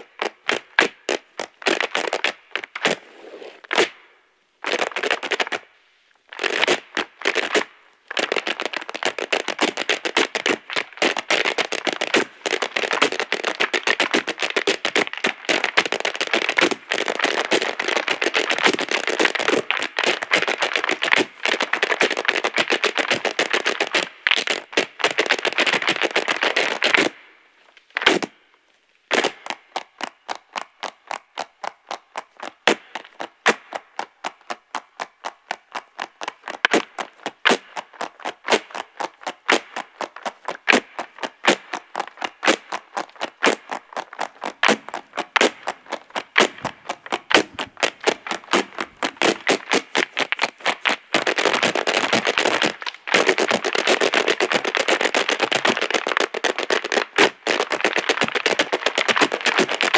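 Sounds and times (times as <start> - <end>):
hard-shoe taps on stage: 42.5 - 59.9.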